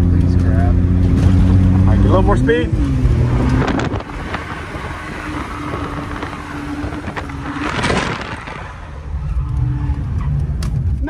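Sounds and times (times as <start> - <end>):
car engine: 0.0 - 11.0
wind noise: 2.7 - 11.0.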